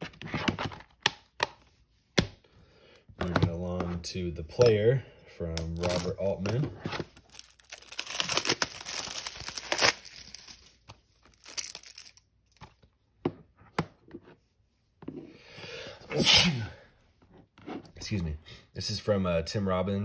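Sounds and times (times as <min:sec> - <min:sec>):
shrink wrap crackling: 0:07.2 - 0:12.6.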